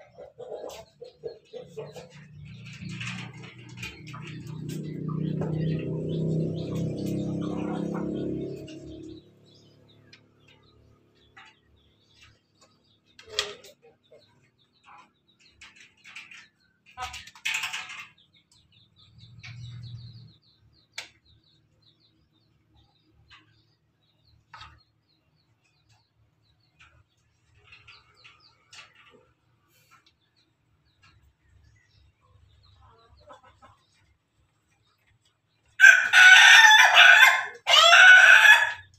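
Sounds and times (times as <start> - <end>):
chickens calling: 0.0 - 38.9
rooster crowing: 35.8 - 38.9.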